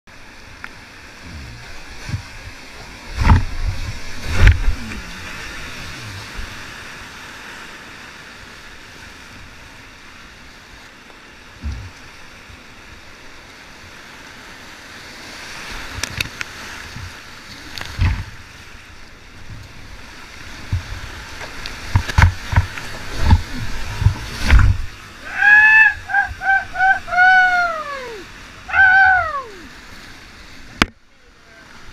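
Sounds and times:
whitewater rapids rushing: 0.1 - 8.4, 20.0 - 30.7
kayak thumps and splashes: 1.2 - 6.8, 15.8 - 18.5, 19.4 - 25.1.

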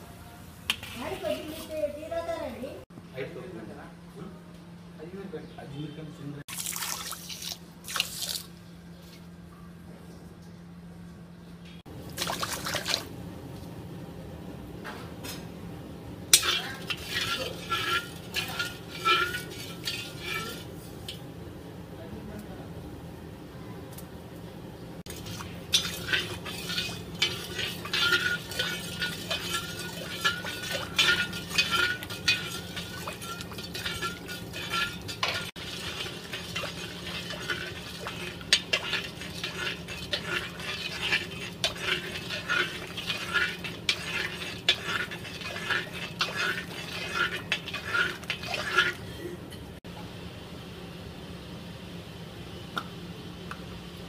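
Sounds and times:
spatula scraping metal pan: 0.7 - 1.8, 16.4 - 21.1, 25.1 - 49.3.

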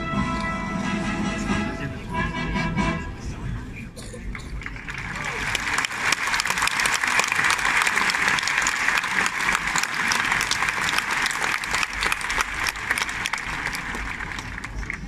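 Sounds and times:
crowd applauding: 4.3 - 15.0.

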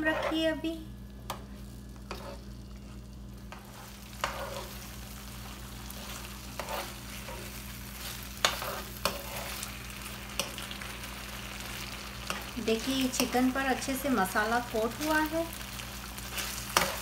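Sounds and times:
metal spoon scraping a pan: 0.0 - 0.6, 2.0 - 4.9, 5.9 - 10.8, 12.2 - 13.4, 16.2 - 17.0
food sizzling in a frying pan: 0.0 - 17.0.

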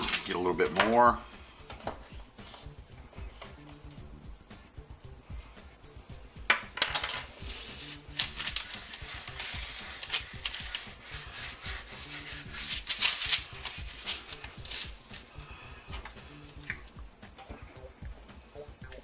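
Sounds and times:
paper rustling and crinkling: 0.0 - 0.6, 7.4 - 15.3
soft background music: 0.0 - 19.0
hands rubbing meat: 7.4 - 17.0.

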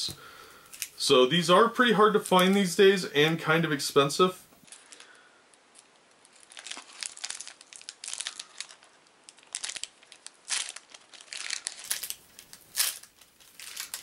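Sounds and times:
wrapper crinkling and tearing: 4.6 - 14.0.

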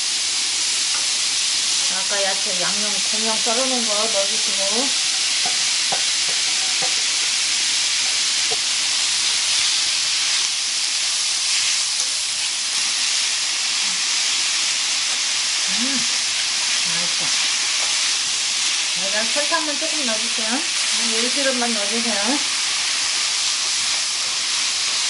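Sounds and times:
food sizzling in a wok: 0.0 - 25.0
spatula knocking on pan: 5.4 - 7.3.

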